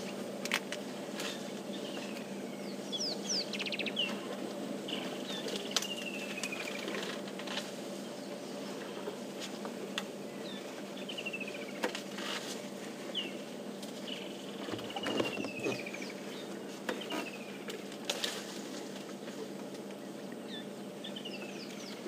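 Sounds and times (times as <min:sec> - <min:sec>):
outdoor background: 0:00.0 - 0:22.0
branches snapping: 0:17.9 - 0:19.0.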